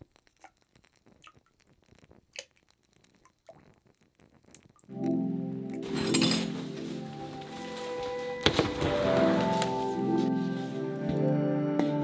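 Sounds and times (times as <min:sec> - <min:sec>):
water dripping: 0:00.0 - 0:05.8.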